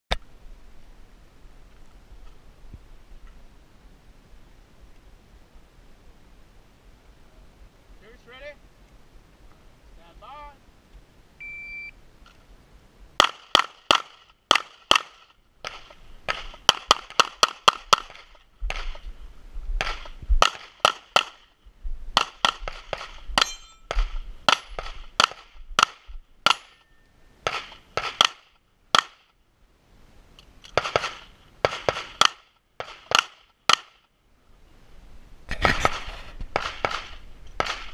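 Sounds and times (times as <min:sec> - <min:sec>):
pistol shots: 0:13.2 - 0:19.0, 0:19.8 - 0:21.4, 0:22.2 - 0:26.7, 0:27.4 - 0:29.2, 0:30.8 - 0:34.0, 0:35.8 - 0:37.9.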